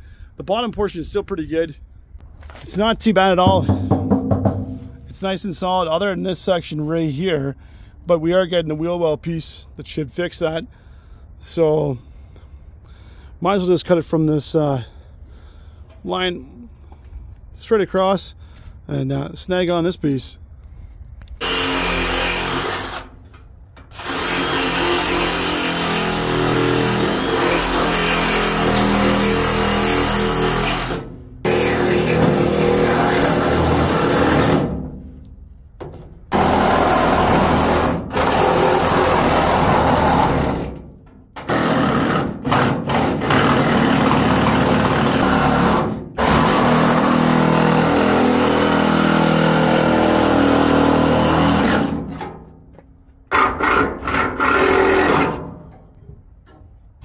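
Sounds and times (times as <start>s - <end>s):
reciprocating saw cutting steel: 21.4s - 23.2s, 23.9s - 34.8s.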